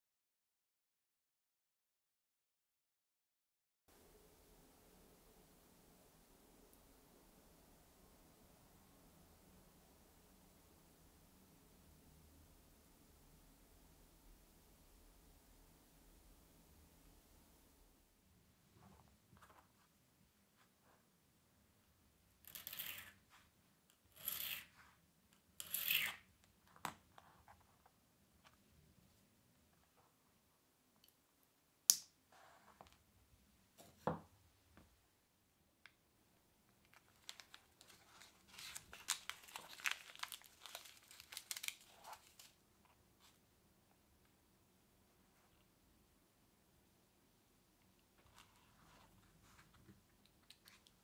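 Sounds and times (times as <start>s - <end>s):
needle file scraping a rod: 24.1s - 24.8s, 25.6s - 26.2s
plastic zip bag crinkling: 36.8s - 42.6s.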